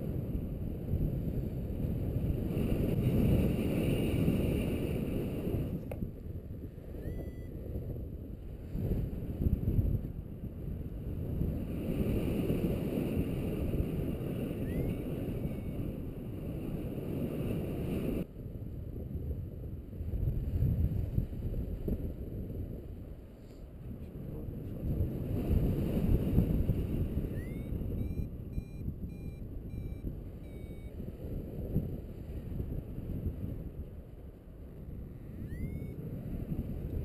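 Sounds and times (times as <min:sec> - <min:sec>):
wind buffeting microphone: 0:00.0 - 0:37.0
faint rising chirps: 0:07.0 - 0:07.5, 0:14.6 - 0:15.8, 0:27.3 - 0:31.0, 0:35.1 - 0:36.0.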